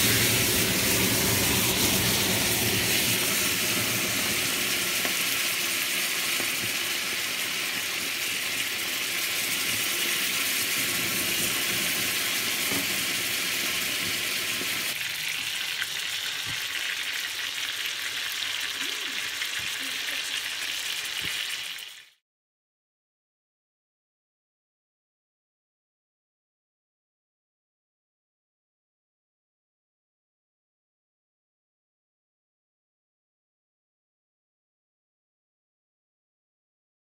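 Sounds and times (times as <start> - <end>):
low rumble: 0.0 - 4.4
fish sizzling on hot plate: 0.0 - 22.2.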